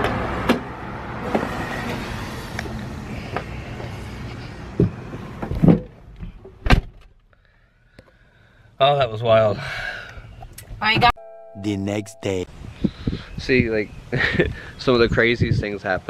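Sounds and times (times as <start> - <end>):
traffic noise: 0.0 - 6.6.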